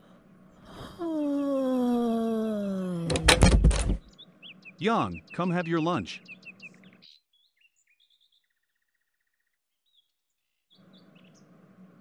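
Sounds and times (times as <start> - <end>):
bird chirps: 4.0 - 11.5
background hiss and hum: 10.8 - 12.0.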